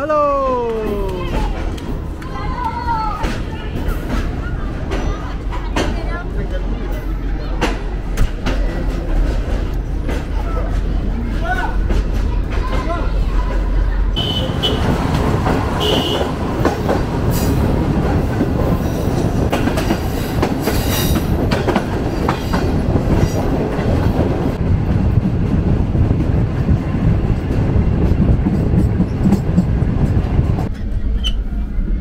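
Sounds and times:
train rumbling: 0.0 - 32.0
wheels clacking over rail joints: 0.8 - 31.4.

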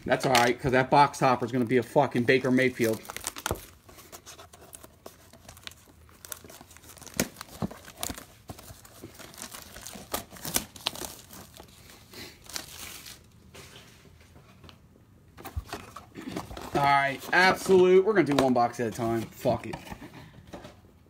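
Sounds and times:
cardboard and wrapping ripping: 1.7 - 13.3.

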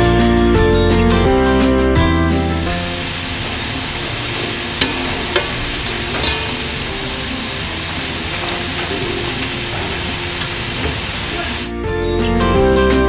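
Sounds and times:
fries sizzling in hot oil: 1.6 - 11.8.

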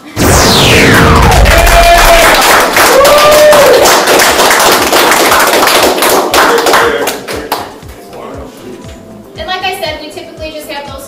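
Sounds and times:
audience applauding: 1.5 - 7.8.

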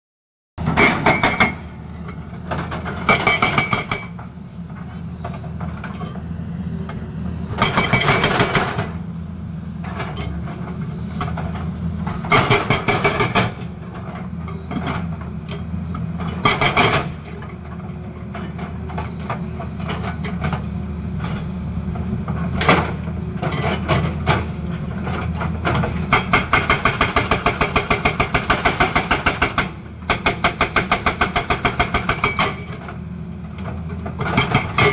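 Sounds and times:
hydraulic rock breaker hammering: 0.6 - 1.9, 2.6 - 4.3, 7.5 - 9.0, 11.2 - 15.2, 16.2 - 17.4, 22.6 - 32.8, 34.2 - 34.9
diesel engine humming: 0.6 - 12.5.

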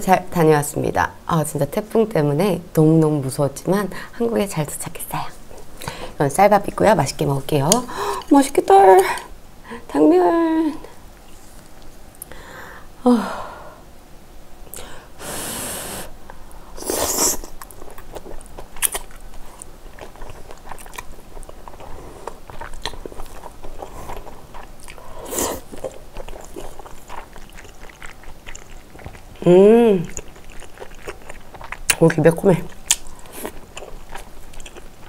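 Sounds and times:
wet chewing and lip smacks: 17.4 - 29.4, 30.1 - 35.0.

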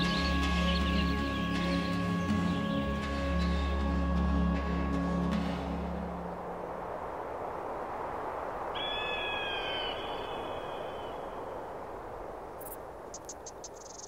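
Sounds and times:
wind-like rushing ambience: 3.8 - 14.0
long bird call: 8.8 - 11.6
quick high insect clicks: 12.6 - 14.0.

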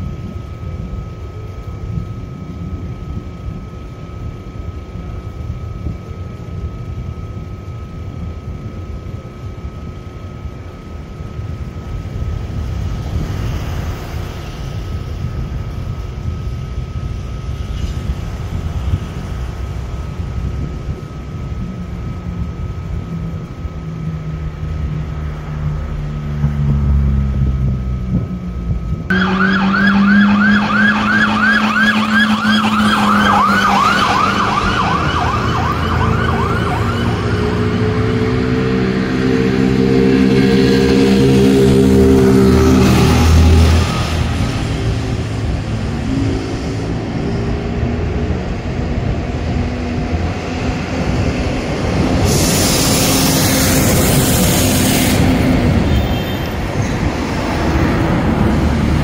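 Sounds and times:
faint steady whine: 0.0 - 40.0
low hum: 0.0 - 55.3
siren wailing yelp: 29.1 - 44.9.

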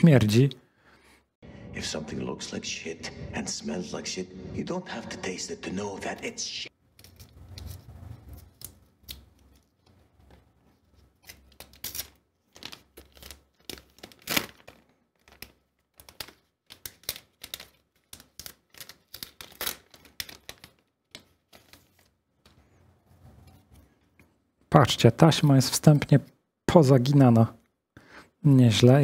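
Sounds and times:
plastic packaging crinkling: 10.9 - 22.2.

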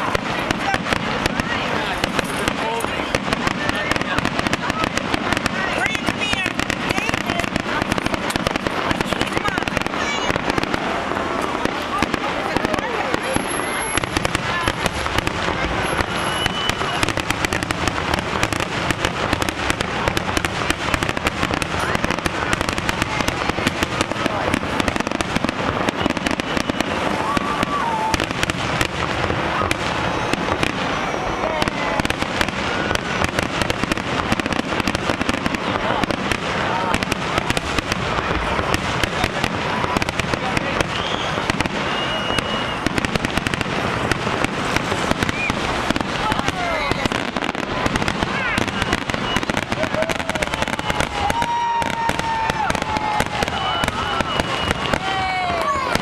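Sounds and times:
firework bangs and crackles: 0.0 - 56.0
fireworks bursting: 0.0 - 56.0
high whistle: 16.1 - 17.0, 40.9 - 42.8, 45.3 - 45.6, 53.5 - 55.2.

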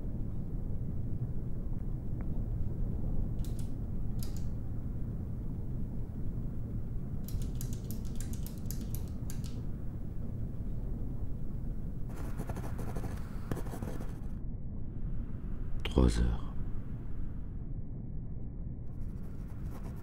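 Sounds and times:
low rumble: 0.0 - 20.0
quick dry scratching: 12.1 - 14.2.

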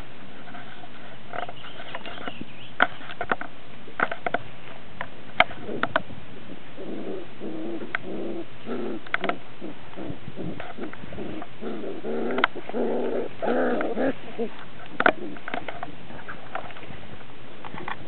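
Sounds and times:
low coo-like sounds: 5.5 - 16.5.

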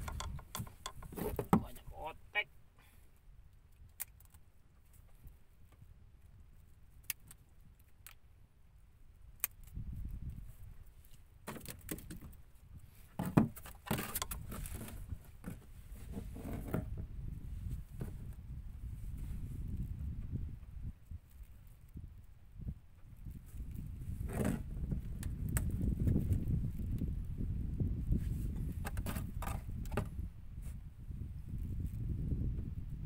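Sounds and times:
fishing gear rattling and clicking: 0.0 - 1.7, 13.2 - 15.6, 28.7 - 30.0.

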